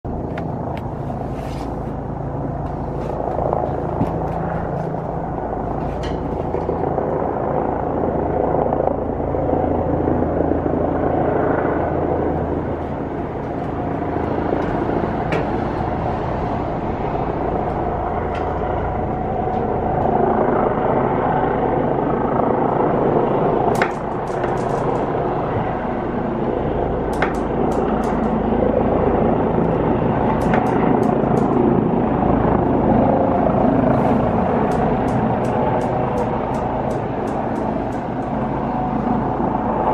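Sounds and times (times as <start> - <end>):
helicopter rotor and engine: 0.0 - 39.9.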